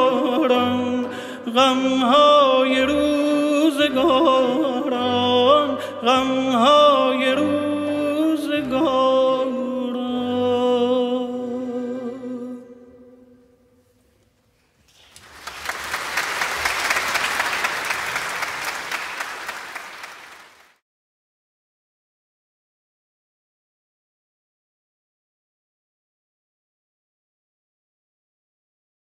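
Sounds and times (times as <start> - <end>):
man singing with orchestra: 0.0 - 13.3
audience applauding: 14.9 - 20.8.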